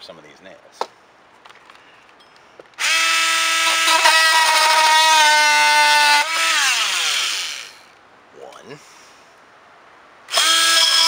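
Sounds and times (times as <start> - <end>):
power tool whining: 2.8 - 8.0, 10.3 - 11.0.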